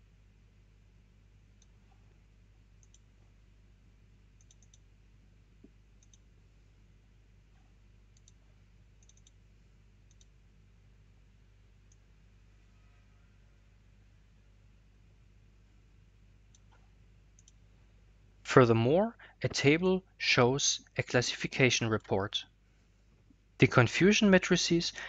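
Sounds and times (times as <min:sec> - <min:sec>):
faint room hum: 0:00.0 - 0:25.0
computer mouse clicks: 0:02.8 - 0:03.1, 0:04.4 - 0:04.8, 0:06.0 - 0:06.2, 0:08.2 - 0:08.4, 0:09.0 - 0:09.4, 0:10.1 - 0:10.3, 0:16.5 - 0:17.6.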